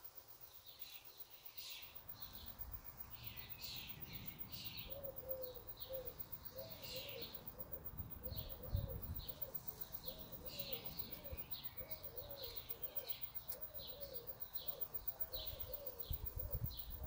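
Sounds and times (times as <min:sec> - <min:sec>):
small bird chirping: 0:00.0 - 0:17.0
dove cooing: 0:04.8 - 0:17.0.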